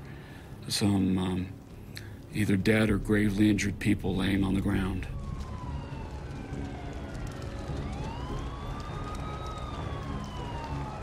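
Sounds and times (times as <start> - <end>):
emergency sirens wailing: 3.6 - 11.0.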